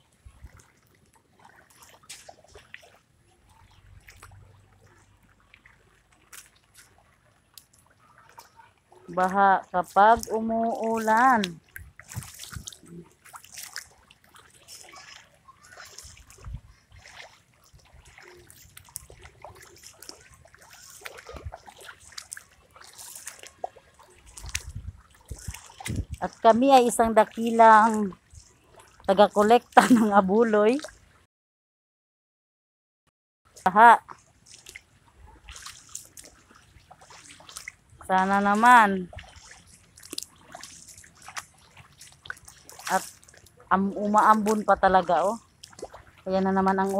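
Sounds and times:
feet wading through water: 0.0 - 31.3, 33.5 - 46.9
flip-flops splashing on wet street: 17.0 - 24.7.

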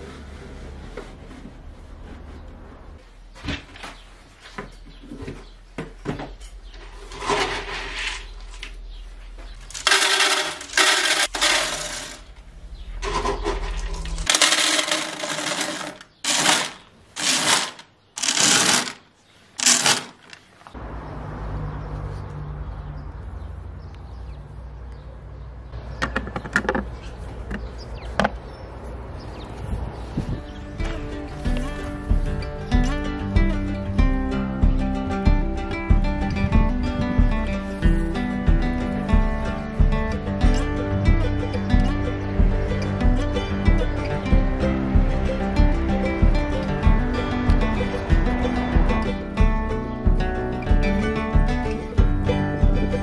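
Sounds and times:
kibble rattling down a pipe: 9.7 - 12.3, 13.0 - 19.0, 19.6 - 20.4.

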